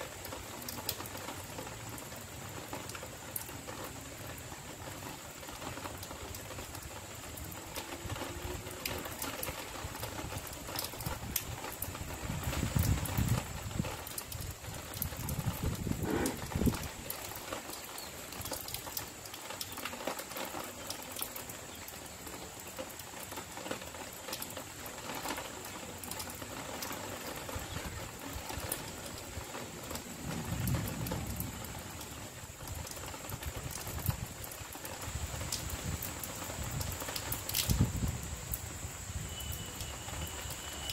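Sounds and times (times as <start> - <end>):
light rain hissing: 0.0 - 40.9
raindrops ticking: 0.0 - 40.9
low rumbles: 15.5 - 17.1.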